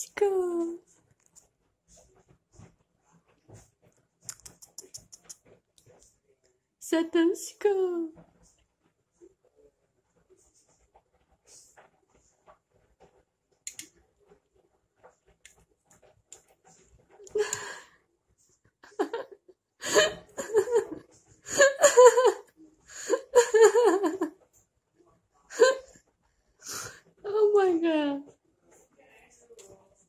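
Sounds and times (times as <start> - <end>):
person laughing: 18.8 - 24.3.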